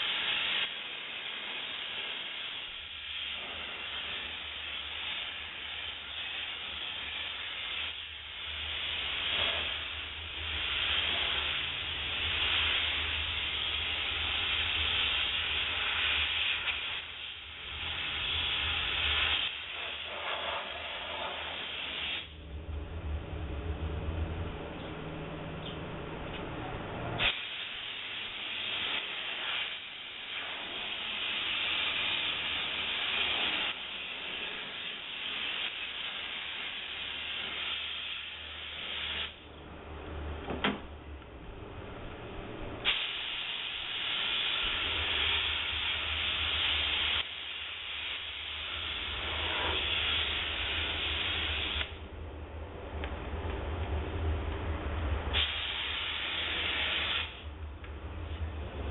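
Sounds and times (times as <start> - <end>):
steam cleaner wand hissing: 0.0 - 22.3, 27.2 - 39.4, 42.8 - 51.9, 55.3 - 57.5.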